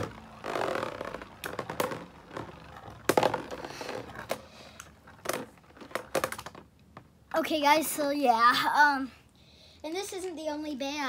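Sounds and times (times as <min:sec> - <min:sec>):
spinning tops whirring: 0:00.0 - 0:06.4.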